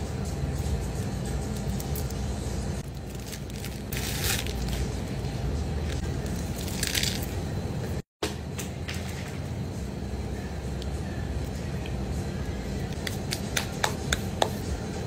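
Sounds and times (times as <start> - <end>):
steady low rumble: 0.0 - 8.0
dry seaweed crackling and crunching: 2.9 - 4.9, 6.6 - 7.3.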